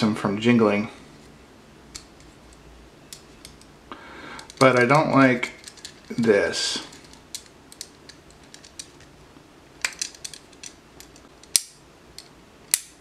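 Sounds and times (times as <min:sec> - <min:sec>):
metal clicks and taps: 0:07.3 - 0:09.0.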